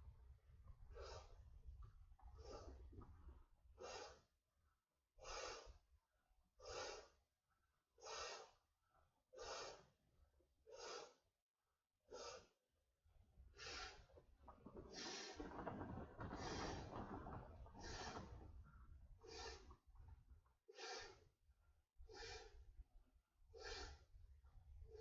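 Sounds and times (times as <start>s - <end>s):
man blowing puffs of breath: 3.8s - 4.3s, 5.2s - 5.8s, 6.6s - 7.2s, 8.0s - 8.6s, 9.4s - 9.9s, 10.7s - 11.2s, 12.1s - 12.6s, 13.6s - 14.0s, 19.2s - 19.8s, 20.7s - 21.2s, 22.1s - 22.6s, 23.5s - 24.1s.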